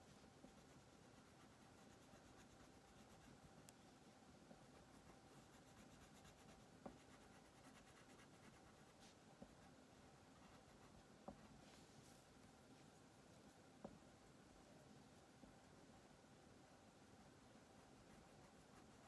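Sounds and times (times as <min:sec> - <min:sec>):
crayon scratching on paper: 0:04.6 - 0:09.7, 0:17.8 - 0:19.0.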